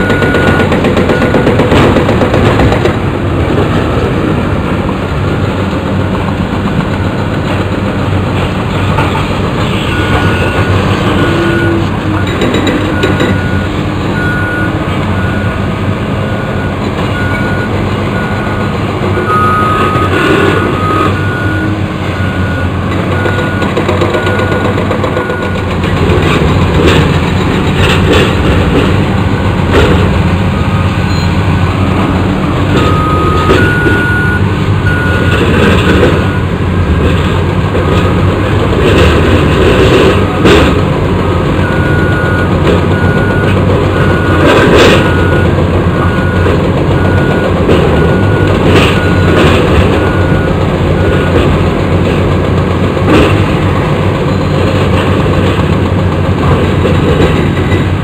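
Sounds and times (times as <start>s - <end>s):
backup alarm beeping: 0.0s - 1.6s, 19.3s - 25.6s, 30.8s - 31.4s, 32.7s - 35.4s, 41.6s - 44.4s, 45.0s - 51.4s
excavator diesel engines running: 0.0s - 58.0s.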